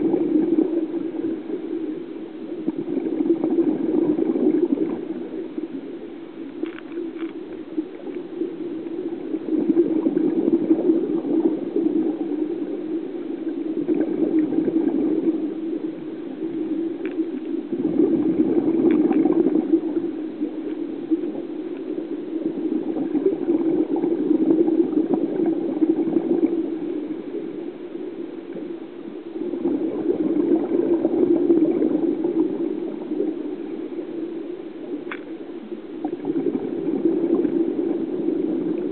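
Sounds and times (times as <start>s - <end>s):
muffled bubbling water: 0.0s - 38.9s
faint clicks: 6.4s - 9.0s, 16.5s - 17.6s, 18.8s - 19.4s, 34.9s - 35.4s.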